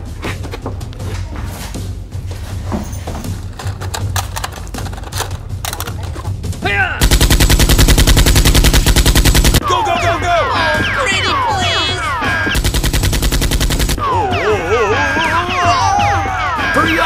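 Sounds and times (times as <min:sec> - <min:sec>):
automatic gunfire bursts: 0:07.0 - 0:09.6, 0:12.6 - 0:14.0.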